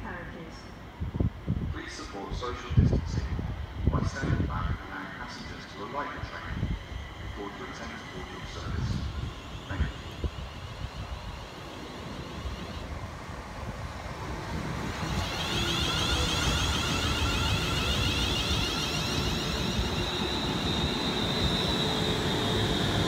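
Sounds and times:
train wheels rushing on rails: 0:00.8 - 0:23.0
high steady tone: 0:05.6 - 0:13.0, 0:14.8 - 0:23.0.

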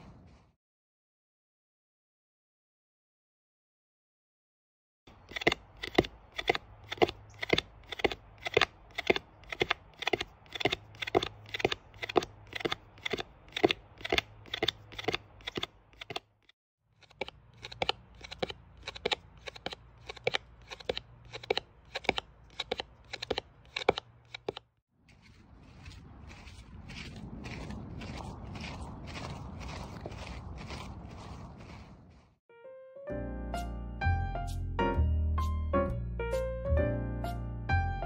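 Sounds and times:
sharp clicks: 0:05.2 - 0:16.3, 0:17.0 - 0:24.7.

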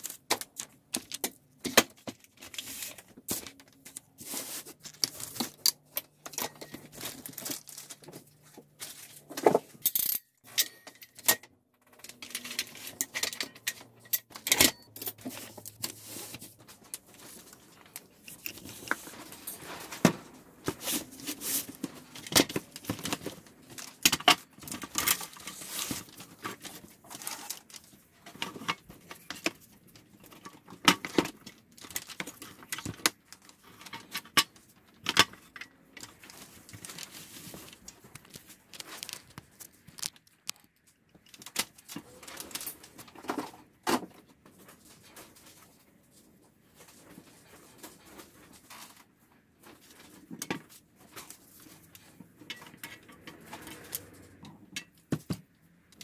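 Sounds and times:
metal clamps clinking: 0:09.8 - 0:15.3.

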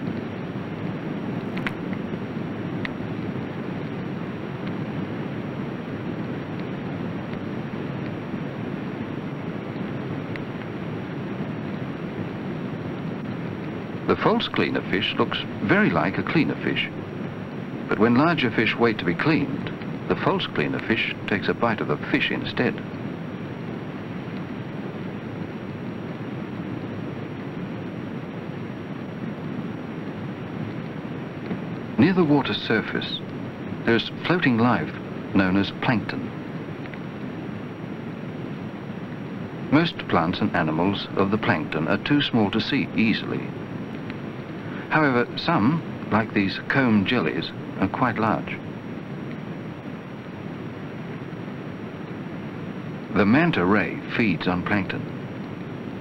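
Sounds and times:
faint clicks: 0:36.8 - 0:37.1.

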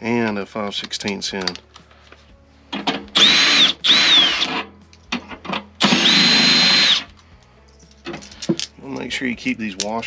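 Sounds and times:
cordless drill motor whining: 0:03.2 - 0:04.7, 0:05.8 - 0:07.1.

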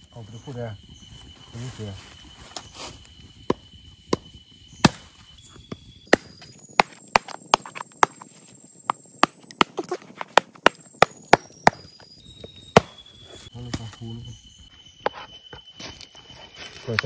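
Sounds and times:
machete chopping bamboo: 0:04.1 - 0:05.0.

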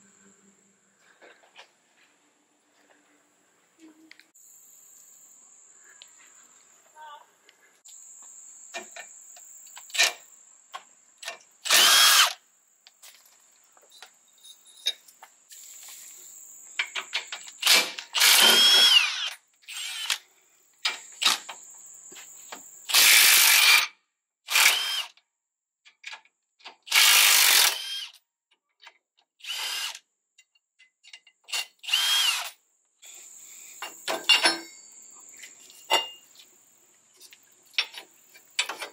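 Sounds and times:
cordless power tool spinning: 0:11.6 - 0:12.4, 0:18.2 - 0:20.2, 0:24.5 - 0:25.1, 0:26.9 - 0:28.1, 0:29.4 - 0:30.0, 0:31.8 - 0:32.5.

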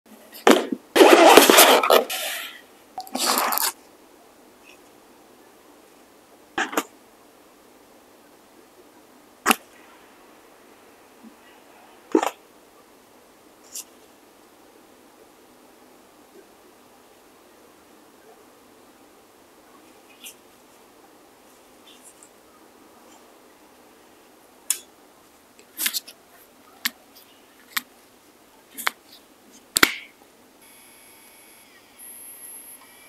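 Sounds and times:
faint steady hiss: 0:00.1 - 0:33.0.

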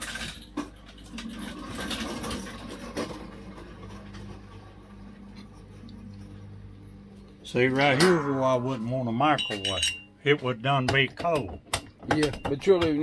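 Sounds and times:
steady low hum: 0:05.0 - 0:10.6.

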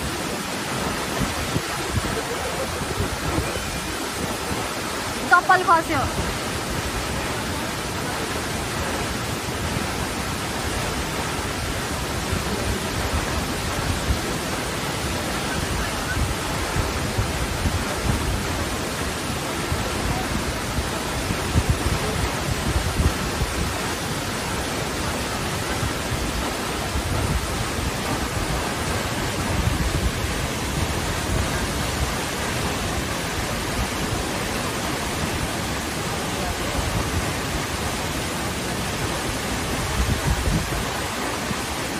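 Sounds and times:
waterfall rushing: 0:00.0 - 0:41.9.

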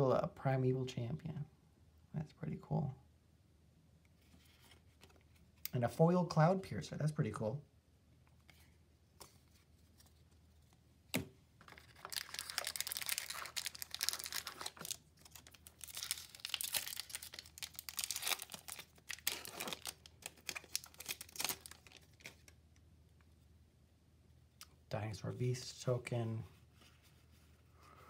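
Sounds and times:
foil wrapper tearing and crinkling: 0:11.7 - 0:22.5.

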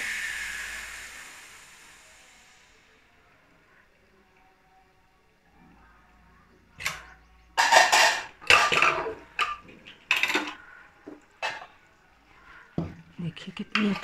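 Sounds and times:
metal lid scraping and clattering: 0:07.6 - 0:10.6.

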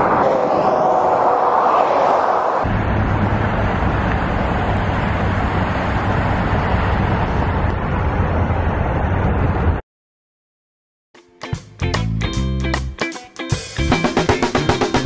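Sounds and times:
car road noise: 0:00.0 - 0:09.8.

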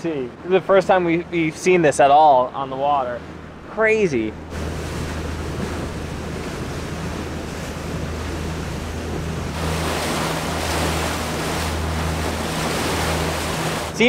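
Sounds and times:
boat engine droning: 0:00.0 - 0:14.0
water rushing past hull: 0:00.0 - 0:14.0
wind on microphone: 0:03.3 - 0:14.0.

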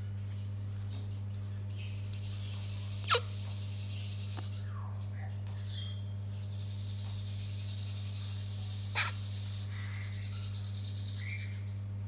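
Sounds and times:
steady low hum: 0:00.0 - 0:12.0
cockatoo chick chirps: 0:03.0 - 0:03.6, 0:08.8 - 0:09.6.

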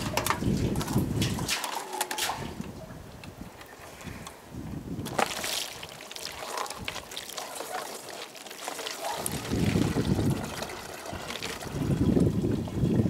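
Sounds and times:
metal bucket and chain clinking: 0:00.0 - 0:02.6
water pouring into plastic bottle: 0:05.0 - 0:13.0.

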